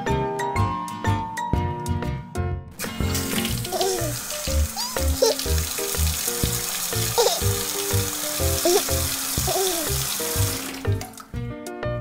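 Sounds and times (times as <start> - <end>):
cheerful background music: 0.0 - 12.0
shower water running: 2.8 - 11.4.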